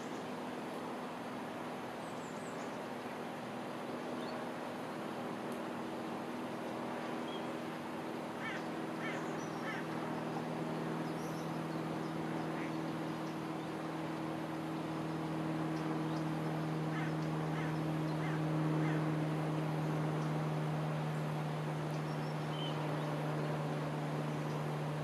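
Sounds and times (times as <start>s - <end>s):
low engine drone: 0.0s - 25.0s
short high bird calls: 8.4s - 9.9s.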